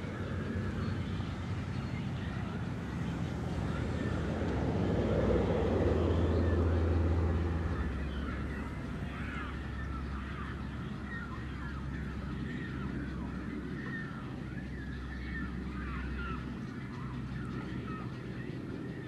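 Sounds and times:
low steady rumble: 0.0 - 19.0
pelicans calling: 7.7 - 19.0.

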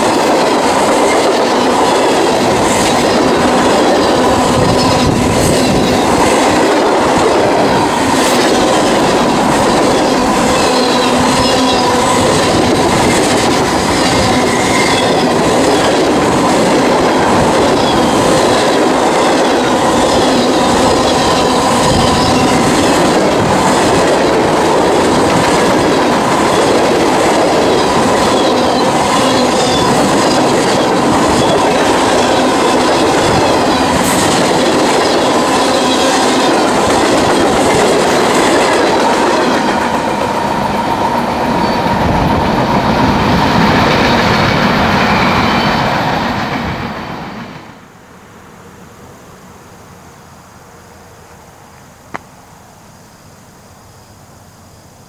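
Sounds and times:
wheel squeal on rails: 0.0 - 47.4
freight train rolling past: 0.0 - 51.6.

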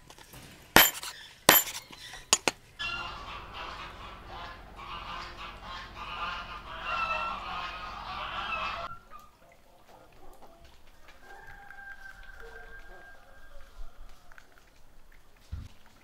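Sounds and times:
poultry calling: 1.1 - 9.5.

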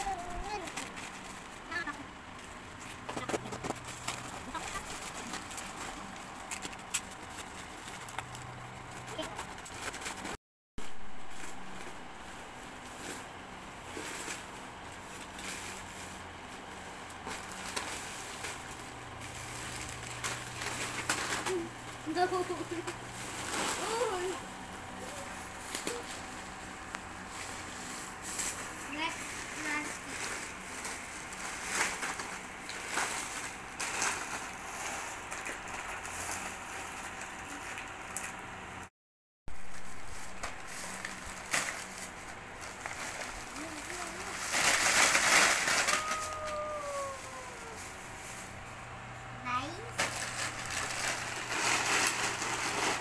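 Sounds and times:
plastic bag rustling: 0.0 - 38.6, 39.5 - 53.0
plastic packaging crinkling: 16.6 - 38.4, 39.6 - 48.1, 50.0 - 53.0.

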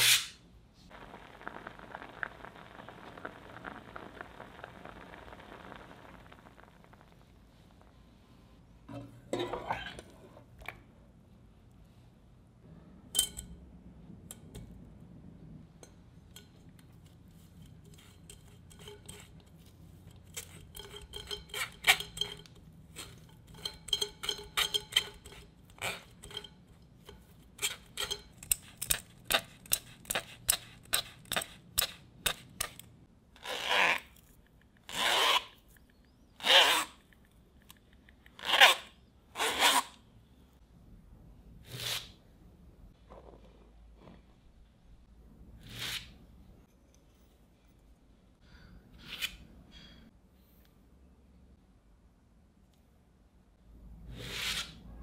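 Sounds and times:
spoon scraping through wire sieve: 17.0 - 32.4.

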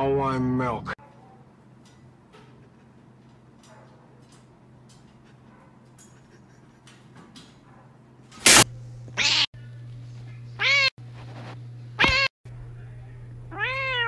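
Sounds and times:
cat meowing: 9.2 - 9.5, 10.6 - 10.9, 12.0 - 12.3, 13.5 - 14.0
kitten yowling harshly: 9.2 - 9.5, 13.5 - 14.0.

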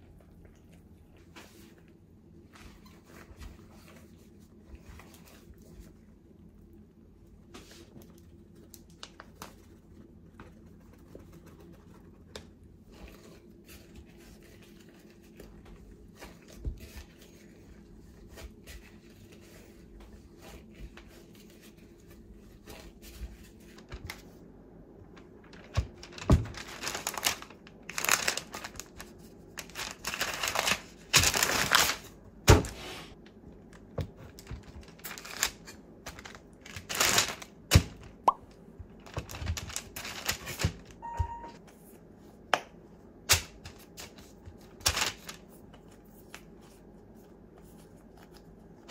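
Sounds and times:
hands working sticky dough: 0.0 - 40.9, 41.6 - 48.9
baking paper crinkling: 7.4 - 24.5, 25.1 - 38.2, 38.8 - 41.0, 43.3 - 48.9.

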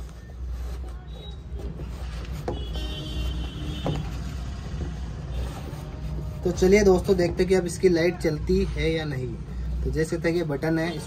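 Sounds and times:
shoe handling noise: 0.0 - 8.2.

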